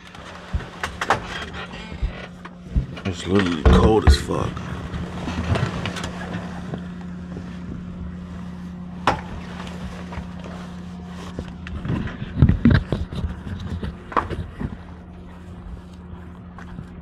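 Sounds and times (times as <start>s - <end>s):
knocks and rustling in cab: 0.0s - 8.2s, 8.9s - 15.0s.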